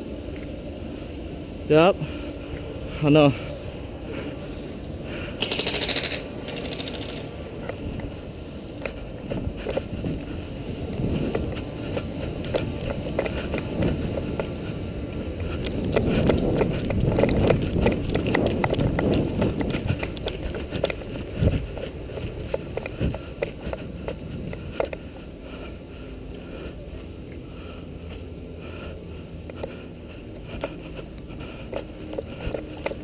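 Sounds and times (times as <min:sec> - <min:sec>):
short rattling burst: 0:05.4 - 0:07.3
footsteps: 0:08.8 - 0:26.7, 0:27.3 - 0:33.0
gear and camera knocking: 0:15.6 - 0:23.8.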